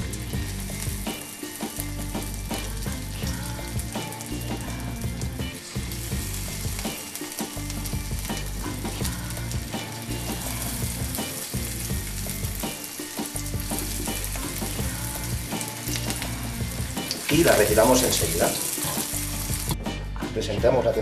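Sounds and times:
leaves frying in hot oil: 0.0s - 19.8s.

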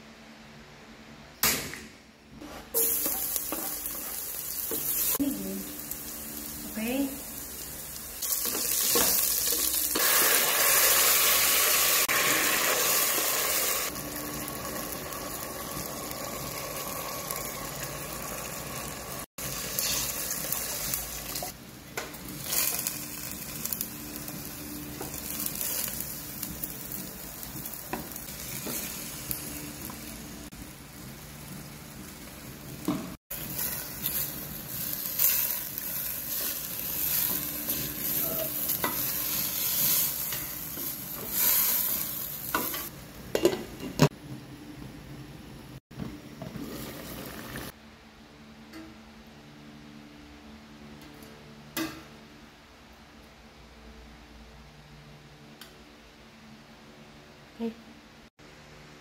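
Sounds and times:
aromatics sizzling in hot oil: 2.4s - 44.1s, 46.3s - 47.8s.

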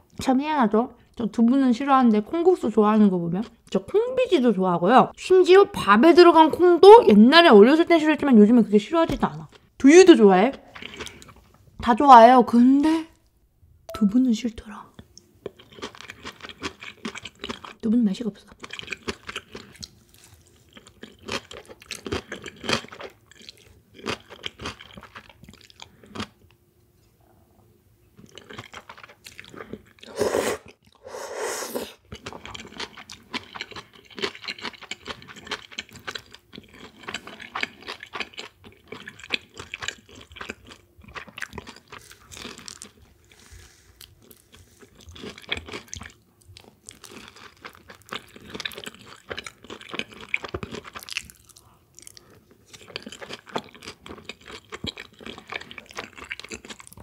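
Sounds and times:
chewing and crunching food: 10.4s - 11.6s, 15.0s - 27.1s, 28.1s - 31.0s, 32.0s - 57.0s.

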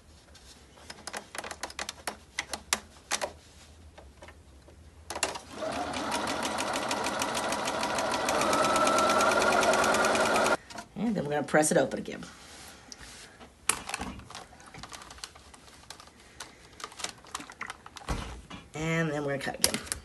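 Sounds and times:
sewing machine stitching: 5.2s - 10.6s.

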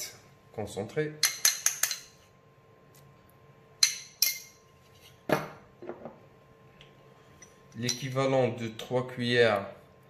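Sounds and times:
spoon clinking on metal pot: 3.8s - 4.6s.

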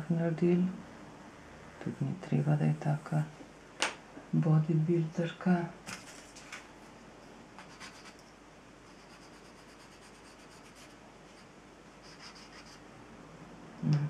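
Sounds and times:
pencil scratching on paper: 7.6s - 8.2s, 8.9s - 12.8s.

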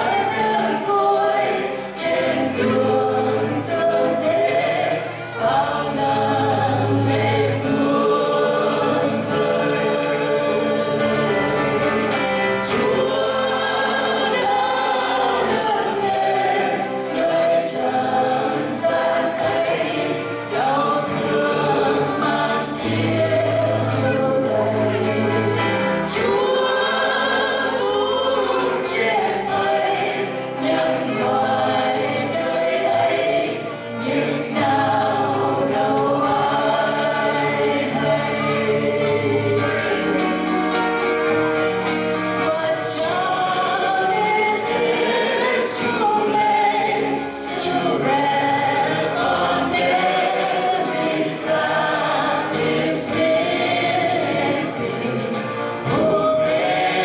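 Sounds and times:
singers singing a carol: 0.0s - 57.0s.

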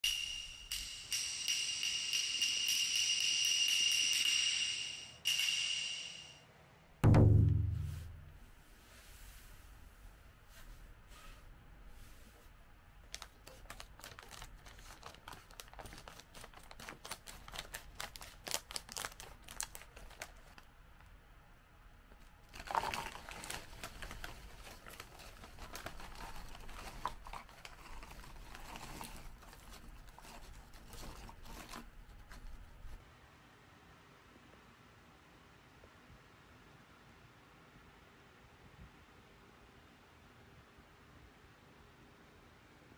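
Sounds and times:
plastic snack bag crinkling: 13.1s - 20.7s, 22.4s - 33.0s.

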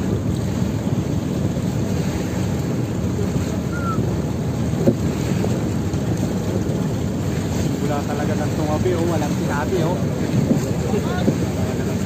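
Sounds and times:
wind and sea rumble: 0.0s - 12.0s.

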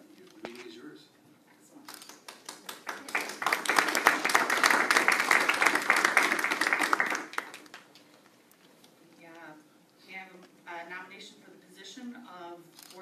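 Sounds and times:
small group applauding: 1.9s - 8.0s.

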